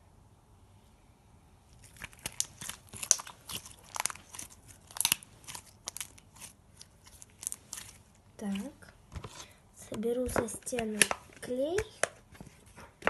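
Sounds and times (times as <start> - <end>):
slime crackling and popping: 1.7 - 8.8.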